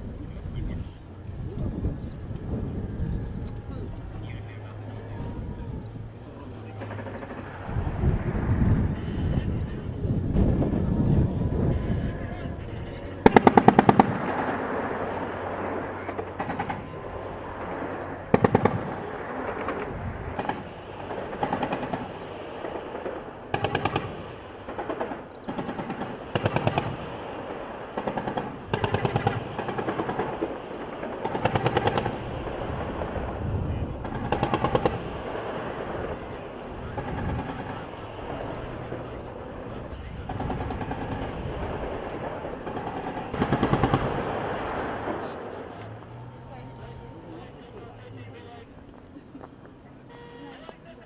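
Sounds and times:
machine gun bursts: 13.3s - 14.5s, 23.5s - 27.0s, 28.0s - 30.3s, 31.2s - 32.2s.

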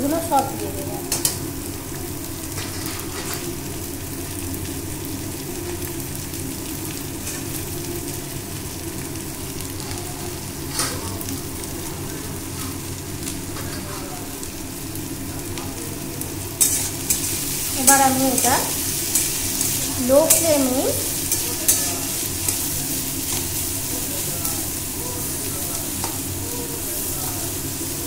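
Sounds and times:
vegetables sizzling in hot oil: 0.0s - 28.0s
metal spatula scraping pan: 16.6s - 23.6s.

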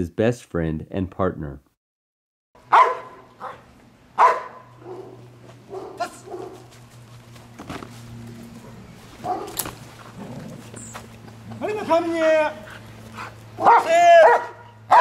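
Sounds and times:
dog barking: 2.6s - 6.7s, 9.2s - 9.7s, 13.6s - 15.0s.

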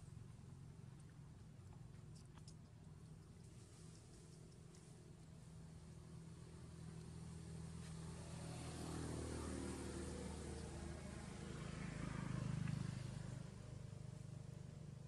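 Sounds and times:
vehicle engine passing: 6.2s - 15.0s.

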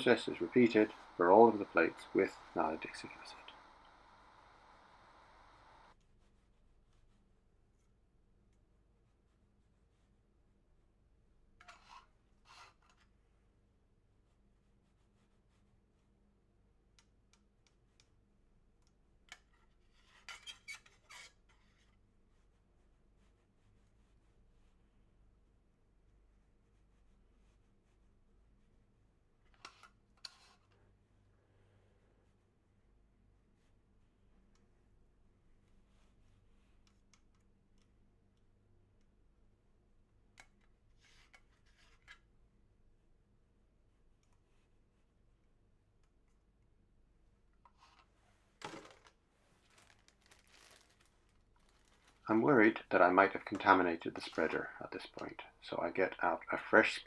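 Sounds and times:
plastic spreader ticking and scraping: 48.6s - 52.4s.

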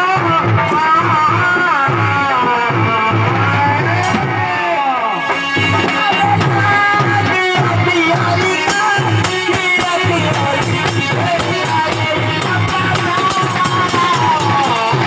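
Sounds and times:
steady drum beat: 0.0s - 15.0s
electronic keyboard melody: 4.0s - 13.1s.

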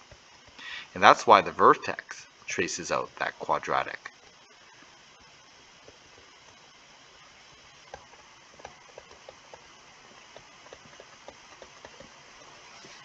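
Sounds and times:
faint steady hiss: 0.0s - 13.0s
stylus tapping on tablet screen: 7.8s - 9.7s, 10.3s - 12.5s.

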